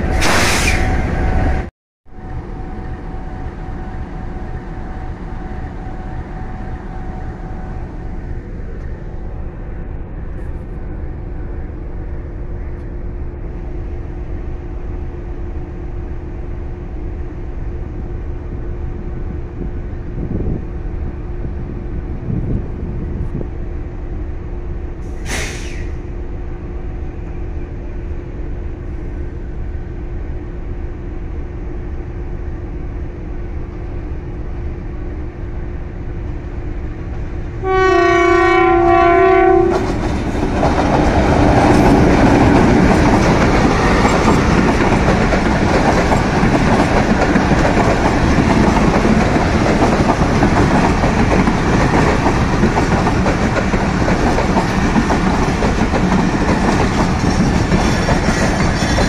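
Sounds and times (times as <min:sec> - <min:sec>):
short hiss: 0:00.2 - 0:00.8, 0:25.0 - 0:26.0
diesel locomotive idling: 0:23.7 - 0:59.0
locomotive horn blast: 0:37.6 - 0:40.0.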